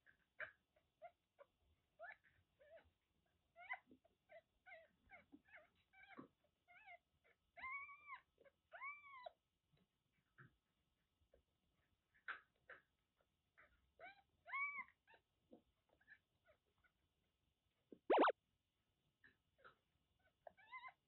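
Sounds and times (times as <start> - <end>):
kitten cries rising and falling: 18.1 - 18.3
kittens mewing and squeaking: 18.1 - 18.3.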